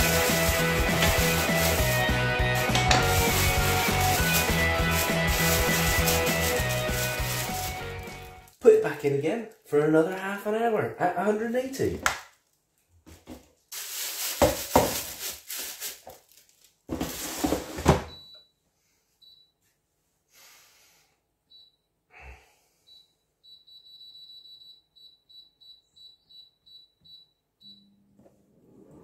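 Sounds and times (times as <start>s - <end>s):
plastic bag rustling: 0.0s - 9.1s, 12.4s - 17.8s.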